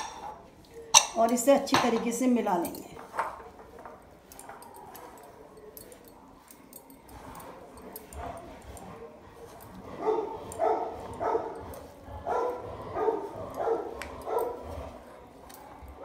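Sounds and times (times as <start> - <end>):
dog barking: 8.0 - 14.7.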